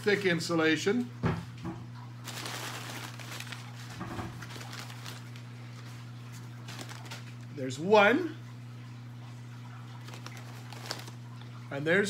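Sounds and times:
steady low hum: 0.0s - 12.0s
paper rustling and crinkling: 2.2s - 7.5s, 9.9s - 11.6s.

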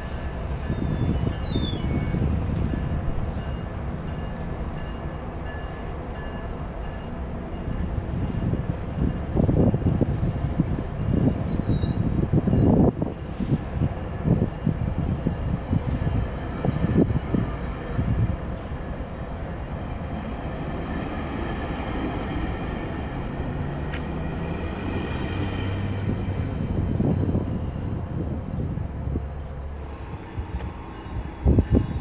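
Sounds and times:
train approaching: 0.0s - 32.0s
train wheels rumbling on rail: 0.0s - 32.0s
high wheel squeal: 0.4s - 3.1s, 14.4s - 20.2s.

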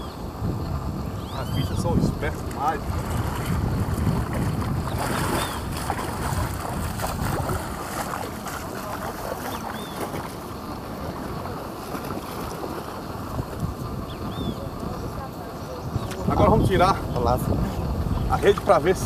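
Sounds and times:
wind on microphone: 0.0s - 19.0s
legs splashing through water: 2.3s - 16.3s.

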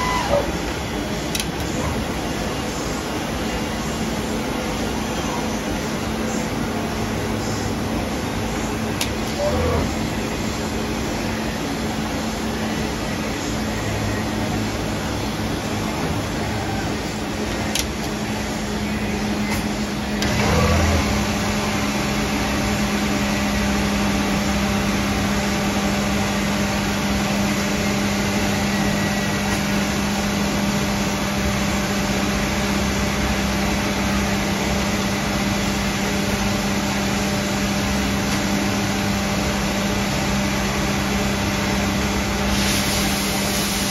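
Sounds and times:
lathe mechanical hum: 0.0s - 43.9s
hiss: 42.5s - 43.9s.

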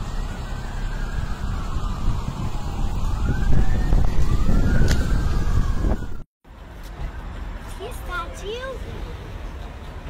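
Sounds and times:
emergency vehicle siren wailing: 0.0s - 6.3s.

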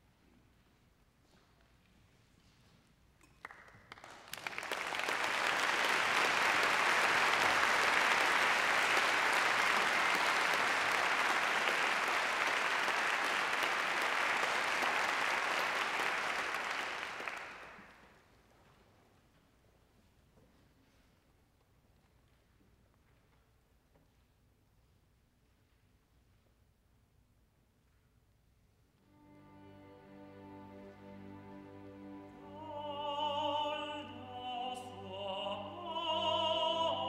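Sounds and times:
audience applauding: 3.4s - 18.1s.

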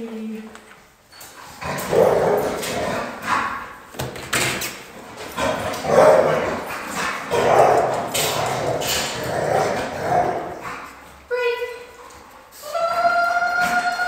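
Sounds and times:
dog barking: 5.9s - 6.5s, 7.3s - 7.9s.

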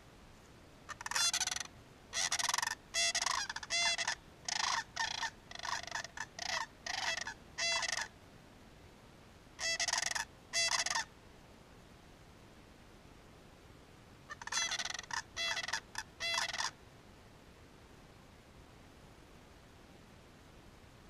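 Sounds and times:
cranes giving rattling bugle calls: 0.9s - 8.1s, 9.6s - 11.1s, 14.3s - 16.8s.

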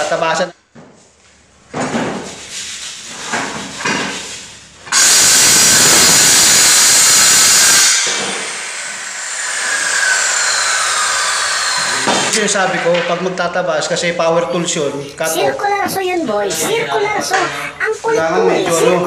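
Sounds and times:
circular saw cutting board: 4.9s - 13.0s.

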